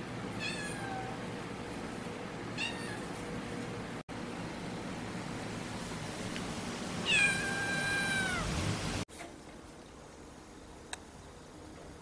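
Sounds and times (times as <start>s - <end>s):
cat meowing: 0.4s - 1.2s, 2.6s - 3.2s, 7.0s - 8.5s
steady background hiss: 3.9s - 12.0s.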